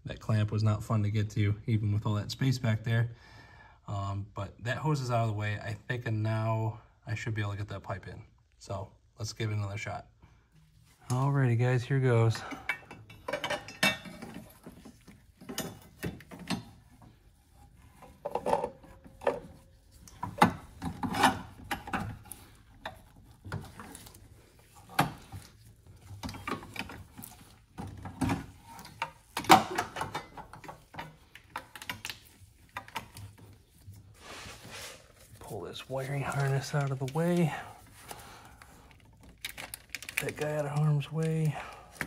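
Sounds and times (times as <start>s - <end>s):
metal pipe knocking and scraping: 12.3s - 23.9s.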